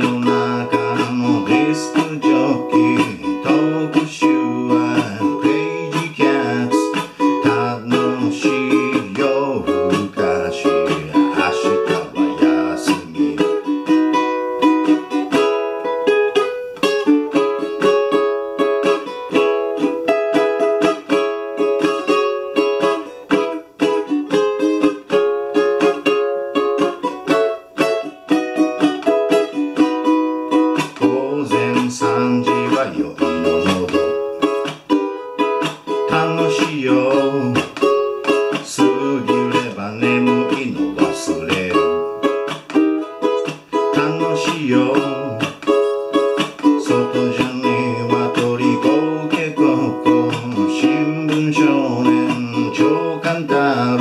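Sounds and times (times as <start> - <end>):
ukulele strumming: 0.0 - 54.0
low voice: 9.3 - 13.7, 31.2 - 34.2, 38.8 - 42.0.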